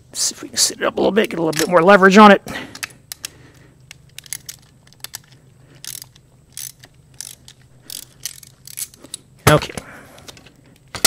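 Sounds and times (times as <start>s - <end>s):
socket ratchet clicking: 2.7s - 9.2s.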